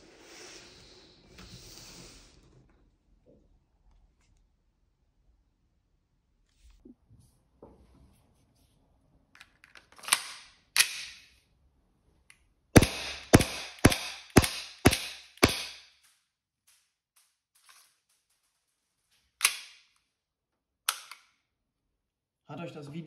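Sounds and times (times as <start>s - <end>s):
pistol handling clacks: 9.4s - 11.3s, 12.8s - 16.1s, 19.4s - 20.0s, 20.9s - 21.4s
airsoft pistol shots: 12.8s - 15.9s.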